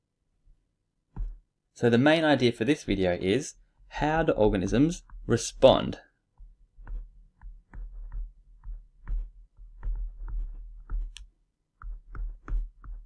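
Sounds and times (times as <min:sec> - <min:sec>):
stylus tapping on tablet: 0:01.1 - 0:01.4, 0:04.8 - 0:13.0.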